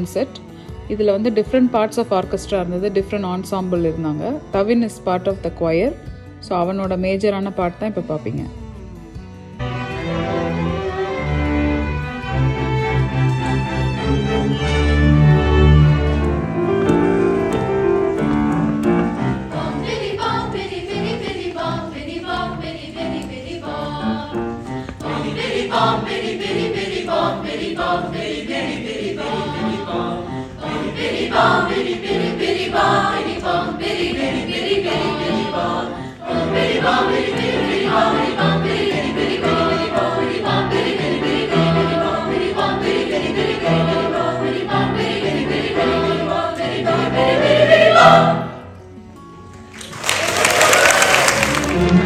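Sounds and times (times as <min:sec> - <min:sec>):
choir singing: 0:09.6 - 0:48.8, 0:49.8 - 0:52.0
lower notes: 0:09.6 - 0:48.9, 0:49.7 - 0:52.0.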